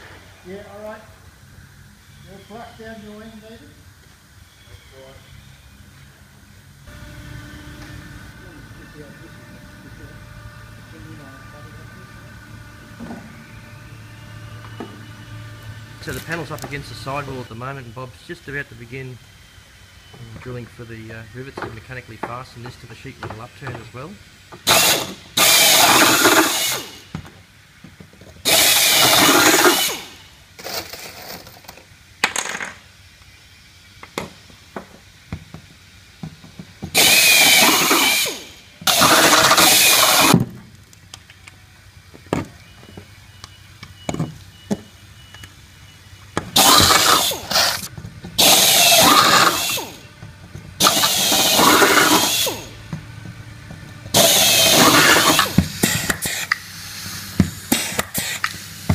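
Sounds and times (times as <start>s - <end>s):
air drill drilling sheet metal: 24.6s - 27.1s, 28.4s - 31.4s, 36.9s - 40.4s, 46.6s - 50.1s, 50.8s - 52.8s, 54.1s - 58.9s.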